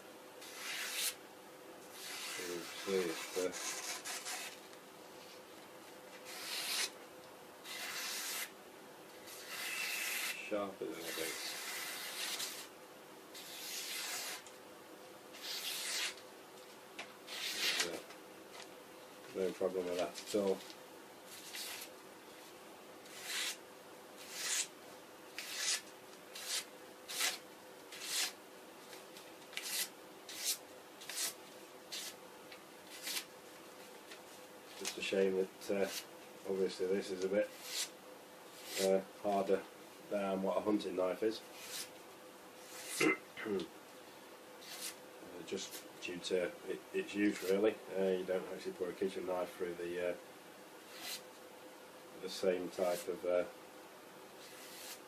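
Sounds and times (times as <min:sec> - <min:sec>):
knife slicing paper: 0:07.7 - 0:08.5, 0:15.4 - 0:16.2, 0:26.4 - 0:28.4, 0:38.6 - 0:38.9, 0:54.4 - 0:55.0.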